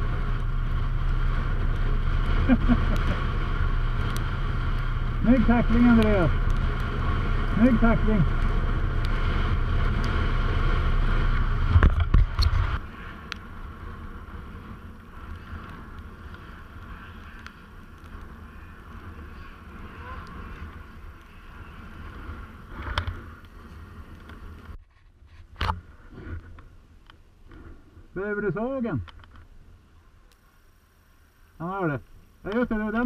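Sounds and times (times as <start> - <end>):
snowmobile engines running: 0.0 - 24.8, 31.5 - 33.0.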